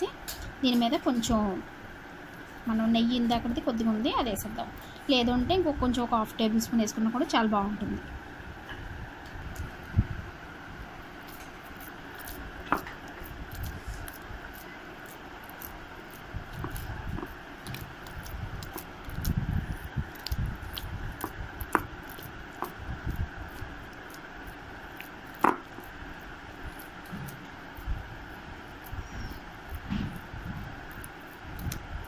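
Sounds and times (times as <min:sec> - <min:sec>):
dough squishing thuds: 0:11.2 - 0:32.0.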